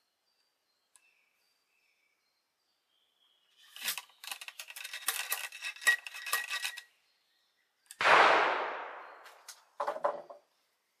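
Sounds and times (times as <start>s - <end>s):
small metallic clicks and clatter: 3.7s - 6.9s
loud rifle shot: 8.0s - 9.4s.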